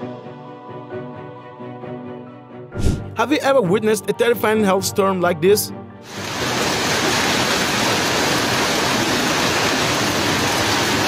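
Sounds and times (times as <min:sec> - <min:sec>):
hail and heavy rain on street: 0:06.1 - 0:11.0.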